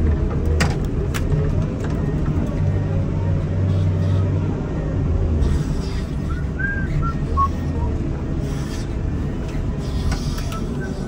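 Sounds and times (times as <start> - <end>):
diesel engine humming: 0.0 - 11.0
short whistled notes: 6.2 - 7.6.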